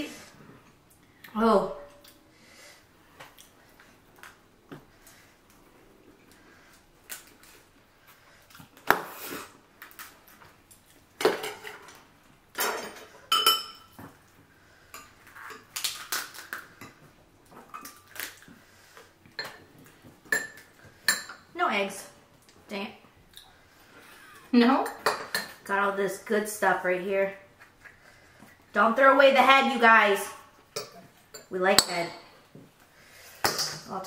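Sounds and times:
utensils clinking on dishes: 0:12.6 - 0:14.1
lobster shell cracking: 0:15.7 - 0:16.7, 0:17.9 - 0:18.5.

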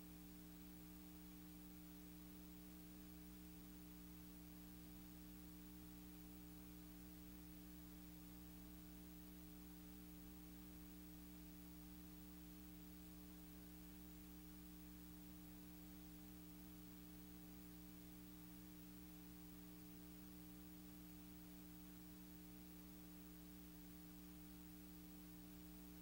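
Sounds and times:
faint low hum with hiss: 0:00.0 - 0:26.0.

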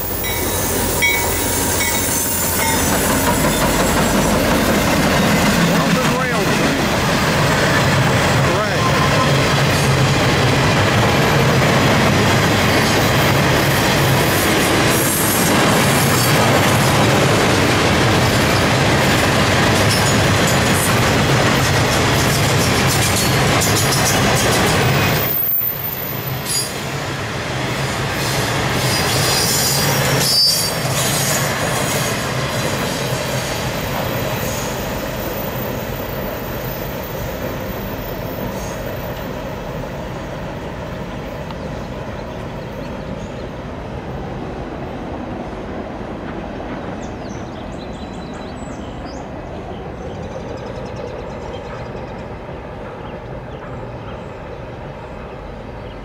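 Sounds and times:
high wheel squeal: 0:00.0 - 0:04.3, 0:25.2 - 0:26.8, 0:28.2 - 0:32.1
freight train rolling past: 0:00.0 - 0:56.0.

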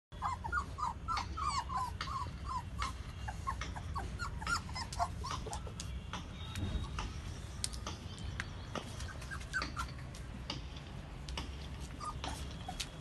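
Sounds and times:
puppies whining and yelping: 0:00.2 - 0:05.9, 0:08.8 - 0:10.3, 0:11.4 - 0:13.0.

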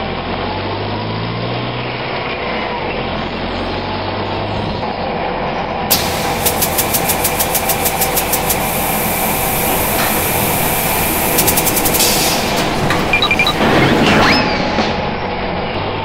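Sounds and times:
cartoon truck engine running: 0:02.4 - 0:16.0
rapid ratcheting click: 0:05.9 - 0:13.6.

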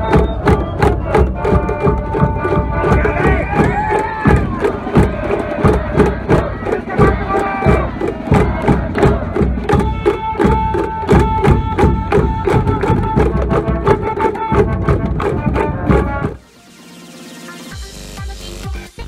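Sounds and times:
steady drum beat: 0:00.0 - 0:16.4
brass band playing: 0:01.0 - 0:16.5.

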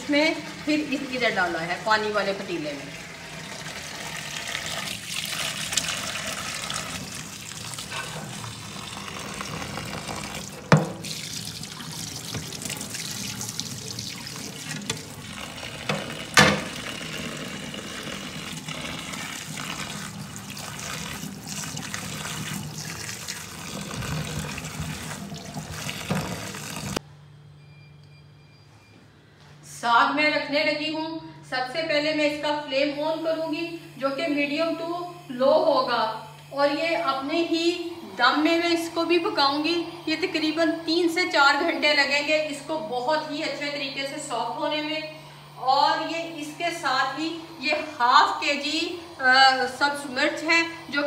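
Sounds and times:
tap water running into sink: 0:02.8 - 0:27.0.

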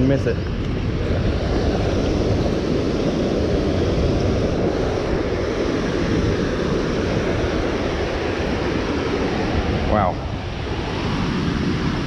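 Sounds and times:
wind rumble on microphone: 0:00.0 - 0:12.0.

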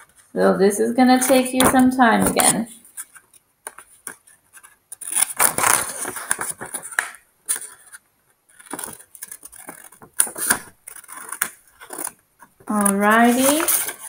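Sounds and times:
paper crinkling and rustling: 0:01.2 - 0:14.0
scissors cutting paper: 0:08.6 - 0:14.0.

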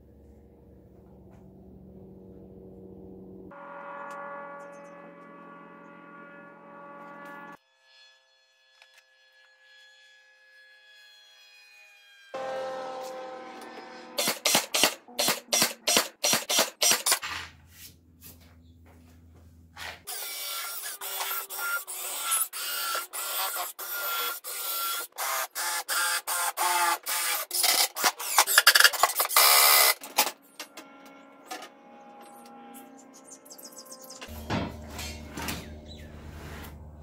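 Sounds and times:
drill driving screws into wood: 0:14.2 - 0:17.4, 0:20.0 - 0:30.3.

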